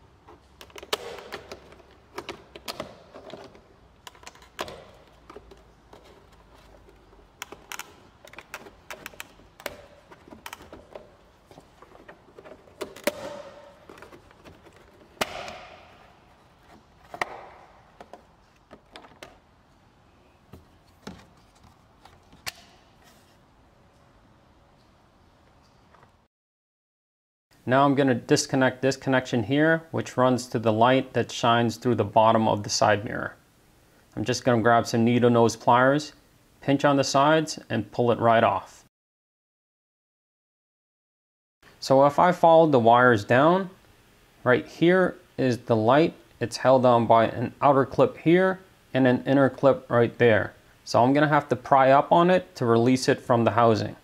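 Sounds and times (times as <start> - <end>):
plastic clips clicking and snapping: 7.4 - 11.1.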